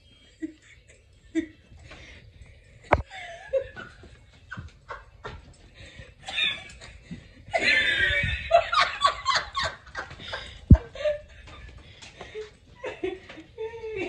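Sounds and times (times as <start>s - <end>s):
people laughing: 2.9s - 14.0s.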